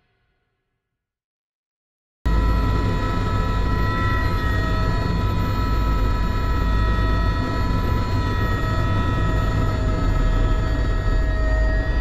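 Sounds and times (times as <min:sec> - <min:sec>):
helicopter rotor and engine rumble: 0:02.3 - 0:12.0
high turbine whine: 0:02.3 - 0:12.0.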